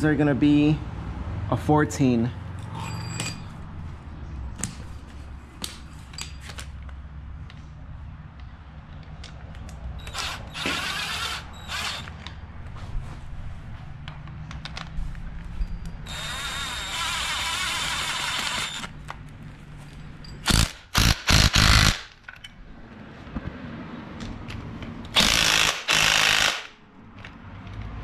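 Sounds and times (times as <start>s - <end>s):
cordless power tool driving bolts: 10.0s - 12.3s, 16.0s - 19.0s, 20.4s - 22.0s, 25.1s - 26.8s.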